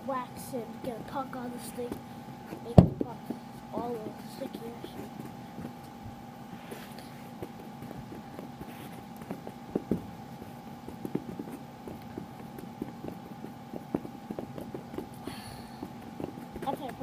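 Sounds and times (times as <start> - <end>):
stick tapping ball on carpet: 6.7 - 15.1, 15.8 - 17.0.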